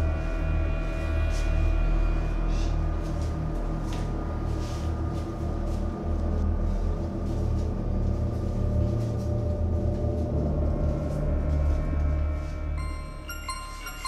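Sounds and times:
droning suspense music: 0.0 - 14.0.

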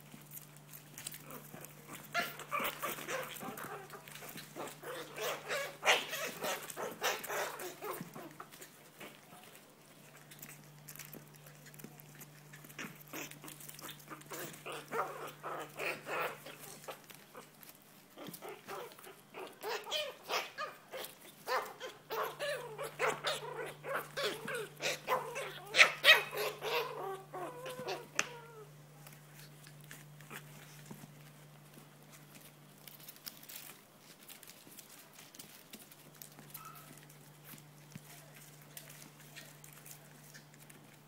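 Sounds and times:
paws scrabbling in plastic basket: 0.0 - 41.0
puppies yipping and whining: 0.2 - 11.0, 11.7 - 33.7, 35.2 - 41.0
puppy barking: 2.2 - 8.3, 18.4 - 28.4, 36.5 - 37.0.

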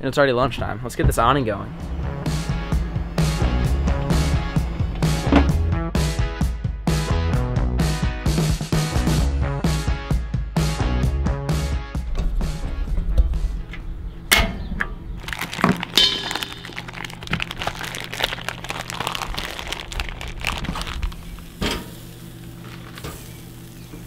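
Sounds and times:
plastic packaging crinkling: 15.2 - 23.1.

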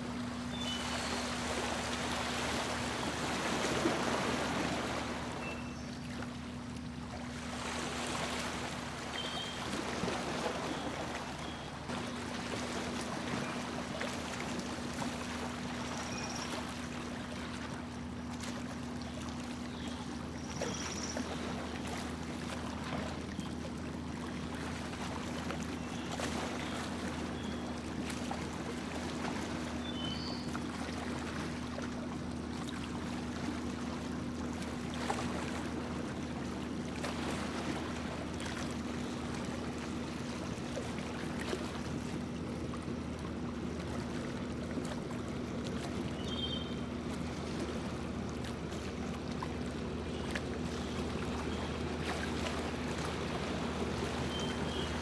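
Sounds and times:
boat motor humming: 0.0 - 55.0
water rushing along hull: 0.0 - 55.0.

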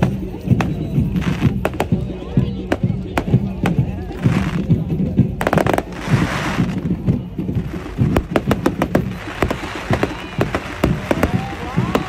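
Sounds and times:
fireworks popping and crackling: 0.0 - 12.0
firework hiss: 5.4 - 6.9, 7.6 - 12.0.

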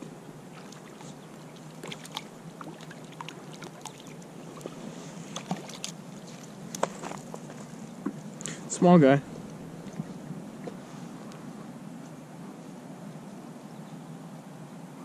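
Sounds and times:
water splashes and drips: 0.6 - 8.2.

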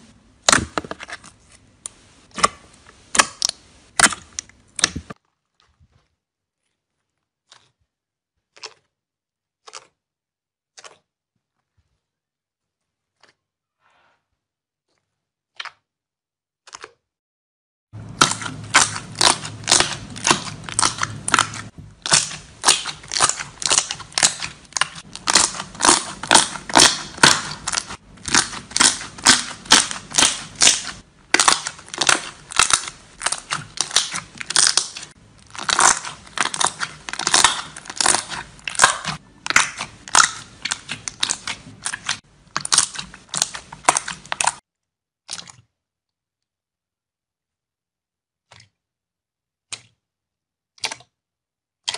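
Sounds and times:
slime squeezed crackling and popping: 18.0 - 44.6.

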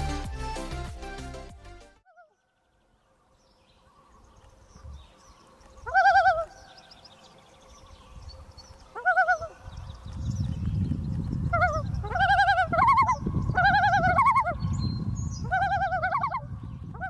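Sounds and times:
bird warbling calls: 3.8 - 10.2, 11.4 - 17.0.

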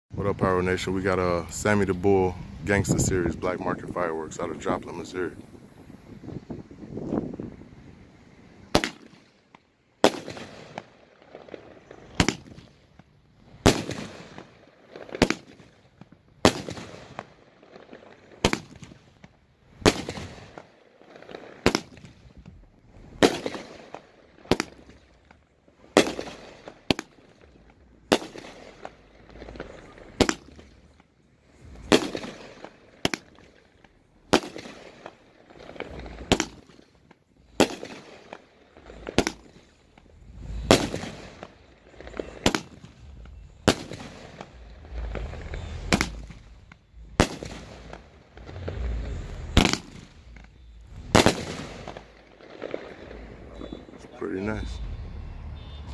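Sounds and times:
firework bangs with echo: 8.6 - 9.3, 10.0 - 13.0, 13.6 - 22.4, 23.0 - 25.2, 25.9 - 55.8.

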